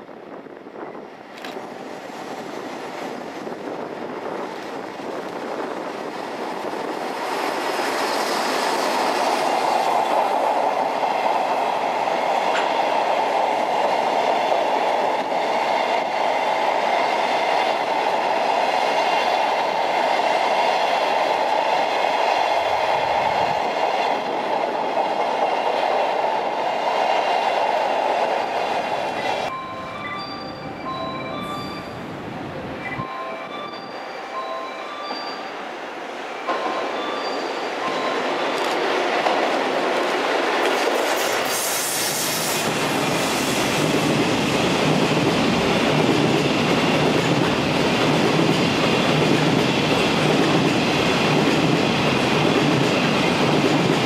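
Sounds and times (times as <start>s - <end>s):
train wheels rushing on rail: 0.0s - 54.0s
clickety-clack over rail joints: 1.2s - 29.5s, 37.8s - 54.0s
two-tone electronic alarm beeps: 29.5s - 32.0s.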